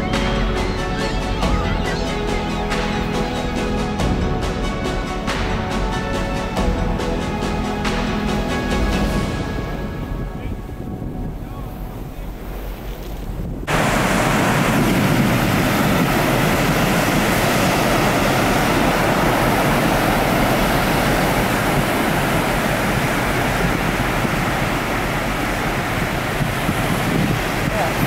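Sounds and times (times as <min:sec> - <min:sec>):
surf breaking over rocks: 0:00.0 - 0:28.0.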